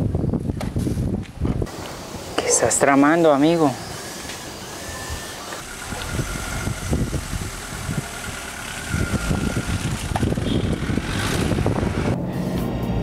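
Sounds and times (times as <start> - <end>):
vehicle engine idling: 5.4 - 12.5.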